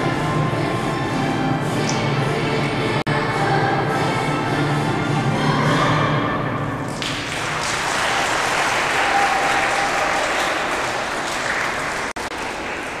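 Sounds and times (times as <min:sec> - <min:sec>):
children's choir singing: 0:00.0 - 0:07.7
audience applauding: 0:07.0 - 0:13.0.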